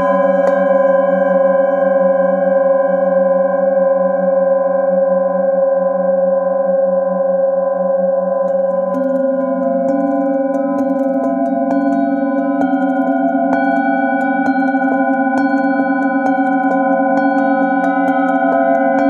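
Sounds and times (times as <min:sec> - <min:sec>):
singing bowl ringing: 0:07.8 - 0:19.0.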